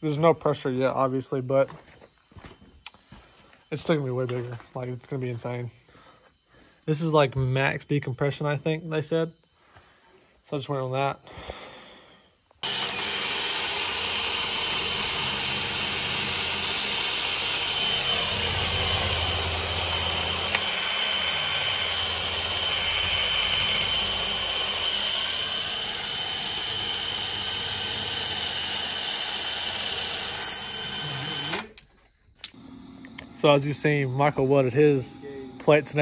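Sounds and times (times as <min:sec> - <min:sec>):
cordless drill drilling metal: 0:12.6 - 0:32.6.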